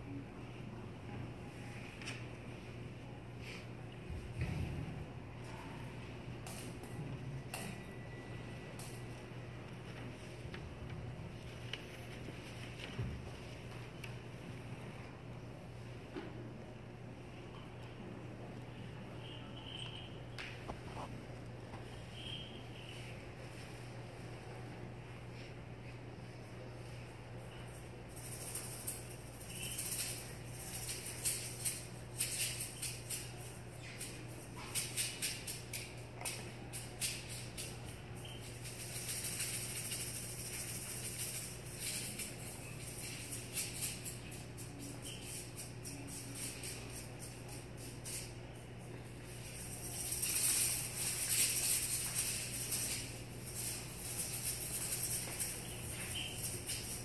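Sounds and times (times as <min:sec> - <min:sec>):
hand rattle shaking: 0:06.4 - 0:07.8, 0:19.2 - 0:20.1, 0:27.6 - 0:57.0.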